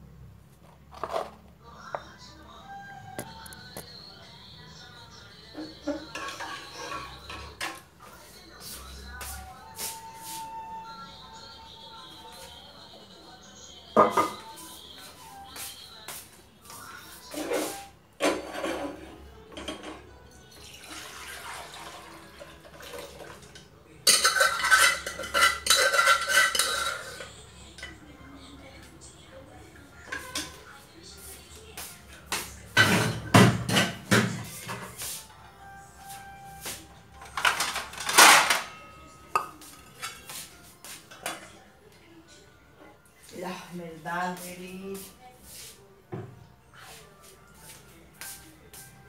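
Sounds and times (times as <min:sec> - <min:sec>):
metal pots clinking: 0:05.9 - 0:07.8, 0:18.2 - 0:27.3.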